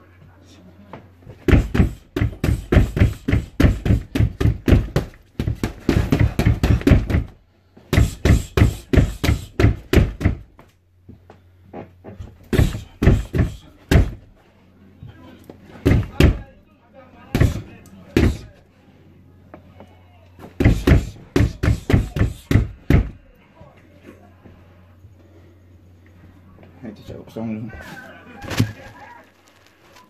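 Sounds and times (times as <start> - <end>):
punches thudding on heavy bag: 1.4 - 10.6, 12.4 - 14.3, 15.8 - 16.5, 17.3 - 18.5, 20.6 - 23.2.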